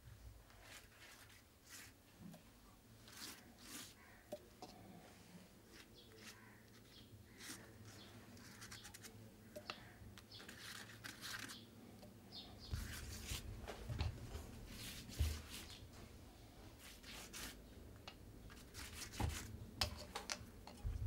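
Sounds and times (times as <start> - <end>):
paintbrush swishing on paper: 0.6 - 2.0, 3.0 - 4.2, 12.7 - 13.5, 14.6 - 15.8, 16.8 - 17.6.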